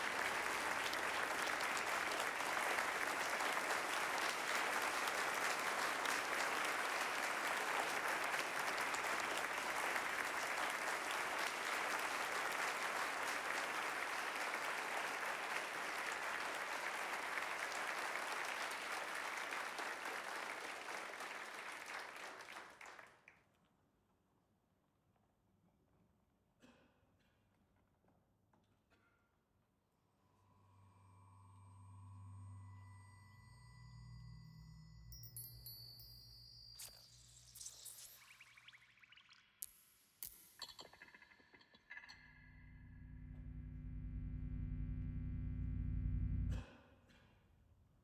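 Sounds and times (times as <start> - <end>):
audience applauding: 0.0 - 23.2.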